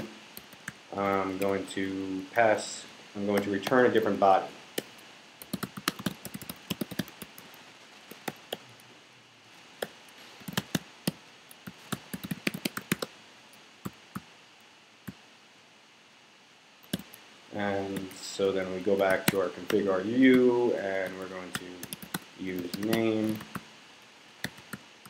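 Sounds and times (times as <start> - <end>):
computer keyboard typing: 4.9 - 8.6, 9.8 - 10.8, 11.6 - 13.1, 19.0 - 19.8, 21.0 - 23.6, 24.4 - 24.8.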